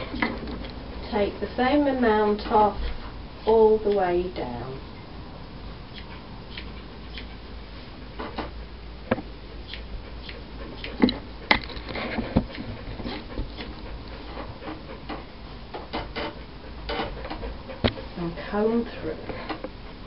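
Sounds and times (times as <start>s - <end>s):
scissors snipping hair: 5.9s - 7.3s.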